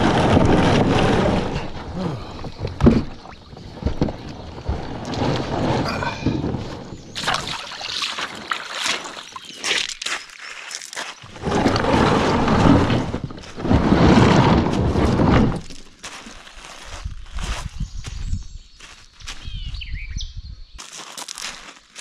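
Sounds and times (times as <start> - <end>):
kayak hull knocking: 0.0 - 9.2
kayak hull grinding on gravel: 0.0 - 19.6, 20.8 - 22.0
footsteps on gravel: 3.8 - 12.2, 13.4 - 19.9, 20.8 - 22.0.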